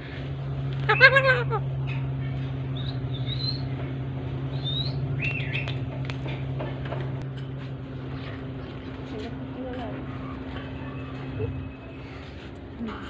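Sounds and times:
low hum: 0:00.0 - 0:13.0
bird chirps: 0:00.8 - 0:03.9, 0:04.5 - 0:05.8.

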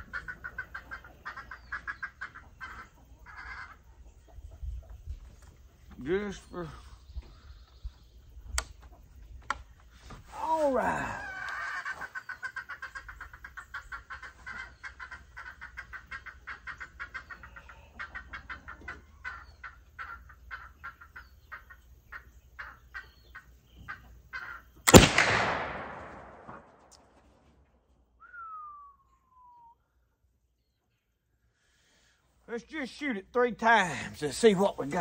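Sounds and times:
rifle shot ringing: 0:24.9 - 0:26.9
short falling whistled note: 0:28.2 - 0:29.8.

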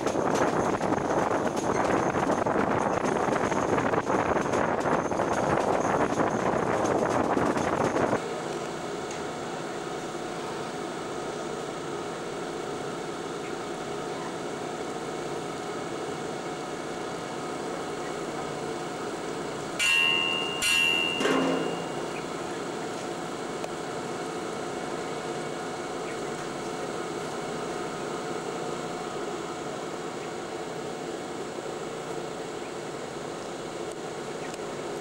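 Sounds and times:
steady background hum: 0:00.0 - 0:35.0
train running noise with wind: 0:00.0 - 0:35.0
metallic strikes with ringing: 0:19.8 - 0:22.2.

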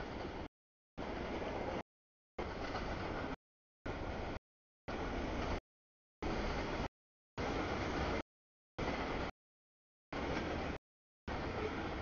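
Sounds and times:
train wheels on track: 0:00.0 - 0:01.8, 0:02.4 - 0:05.6, 0:10.2 - 0:12.0.

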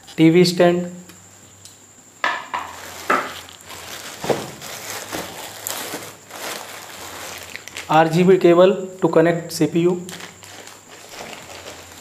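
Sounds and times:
plastic bag crinkling: 0:02.5 - 0:08.3, 0:09.9 - 0:12.0.

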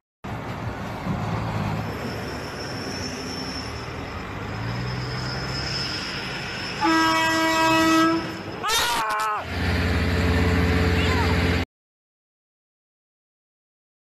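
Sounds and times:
truck air horn blast: 0:06.8 - 0:09.0.

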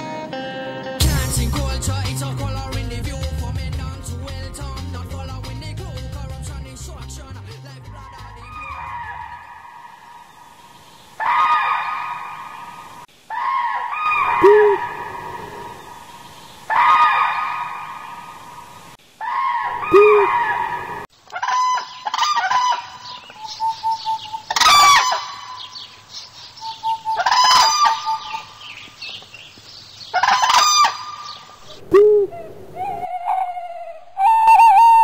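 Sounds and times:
man imitating poultry calls: 0:06.9 - 0:09.4, 0:14.2 - 0:15.8, 0:19.7 - 0:20.7, 0:26.7 - 0:28.5
low hoot: 0:13.4 - 0:15.9, 0:19.7 - 0:21.0, 0:31.6 - 0:35.0.

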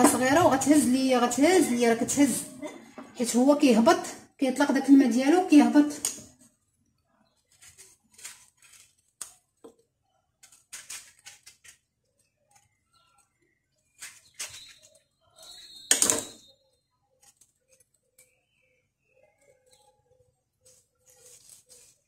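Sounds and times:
knife cutting lemons: 0:10.4 - 0:11.9.

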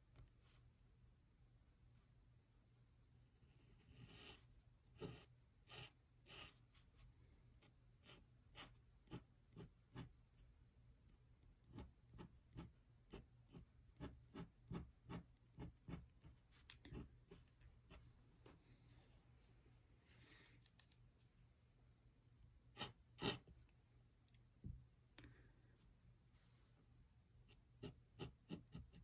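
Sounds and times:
pen nib scratching paper: 0:03.3 - 0:10.5, 0:11.1 - 0:18.1, 0:22.7 - 0:23.5, 0:27.5 - 0:29.0.

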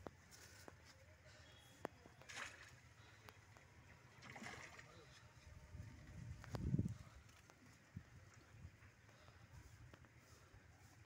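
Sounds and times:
fish splashing at water surface: 0:04.1 - 0:05.1.

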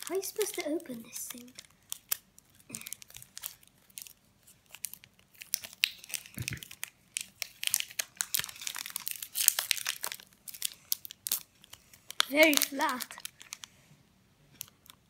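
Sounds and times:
chocolate wrapper tearing and crinkling: 0:00.0 - 0:13.7, 0:14.6 - 0:15.0.

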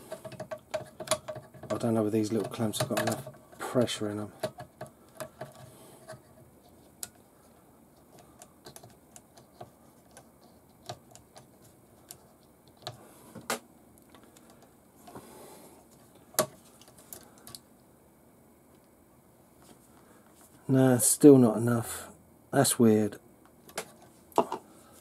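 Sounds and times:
plastic and metal parts clicking: 0:00.1 - 0:03.6.

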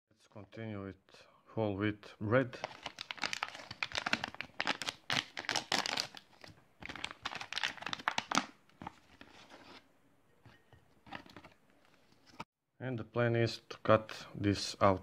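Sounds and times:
plastic pouch tearing and crinkling: 0:02.6 - 0:08.6.

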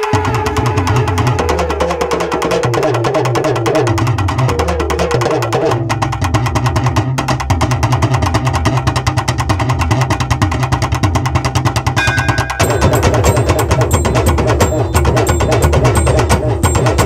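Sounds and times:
fast drumming ensemble: 0:00.0 - 0:17.0
melodic line: 0:12.0 - 0:15.6.

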